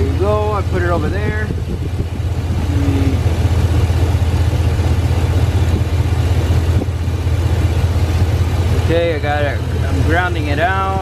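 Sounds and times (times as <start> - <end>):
alternator spinning on belt: 0.0 - 11.0
truck engine idling: 0.0 - 11.0.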